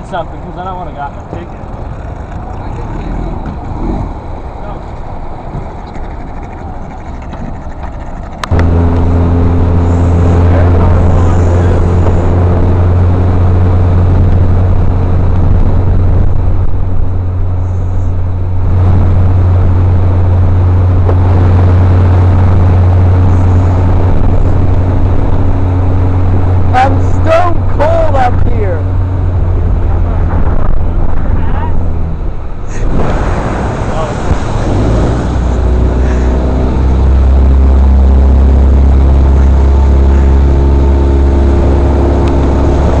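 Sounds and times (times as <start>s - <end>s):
water rushing: 0.0s - 17.6s, 18.3s - 43.0s
outboard motor running: 0.0s - 43.0s.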